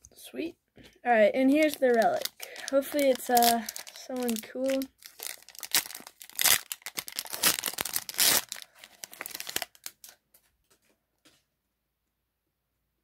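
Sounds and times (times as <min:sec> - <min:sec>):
foil wrapper tearing and crinkling: 0:01.5 - 0:10.2.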